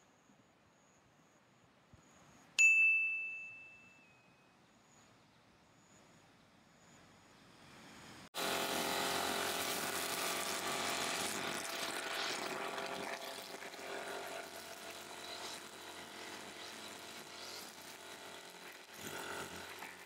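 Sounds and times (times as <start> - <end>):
brush cutter whining: 8.4 - 20.0
trimmer line whipping through grass: 8.4 - 20.0.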